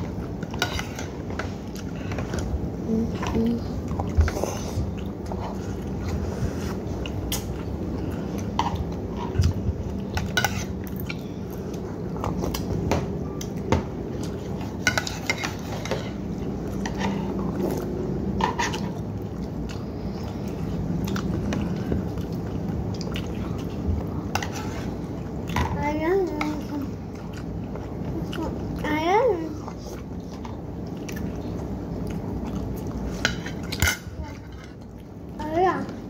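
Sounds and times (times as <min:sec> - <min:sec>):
steady low hum: 0:00.0 - 0:36.0
close-up chewing: 0:29.6 - 0:33.1.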